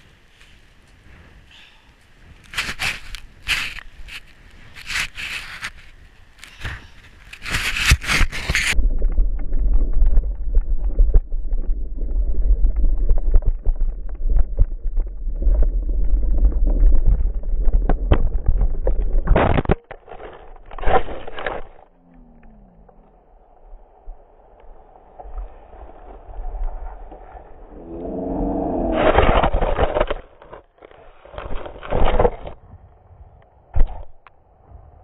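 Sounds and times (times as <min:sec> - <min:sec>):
deep dense rumble with clicks: 0:02.0 - 0:32.6
bike scraping and knocking: 0:02.5 - 0:12.0.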